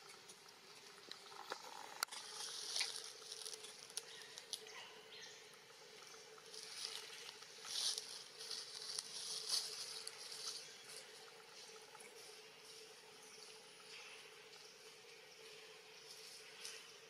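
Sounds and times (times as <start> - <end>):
faint steady hum: 0.0 - 17.0
branch rustling: 1.6 - 4.7, 6.5 - 11.1.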